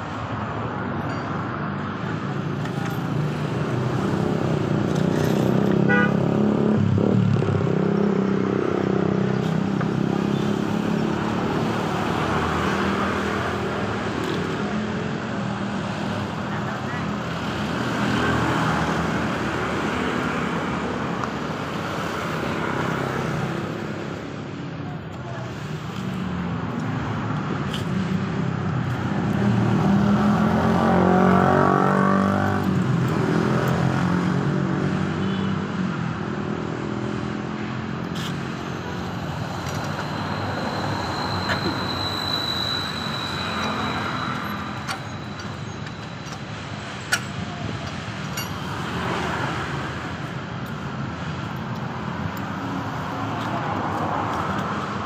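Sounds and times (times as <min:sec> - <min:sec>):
street traffic: 0:00.0 - 0:55.0
motor vehicle passing loudly: 0:29.5 - 0:32.7.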